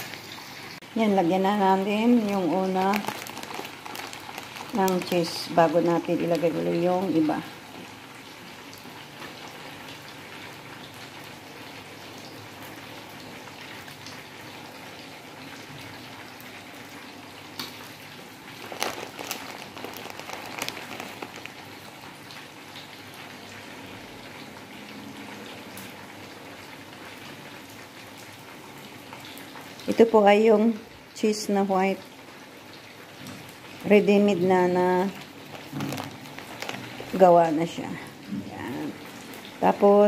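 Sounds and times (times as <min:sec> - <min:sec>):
hot oil crackling in a pan: 0:00.0 - 0:30.2, 0:31.0 - 0:40.0.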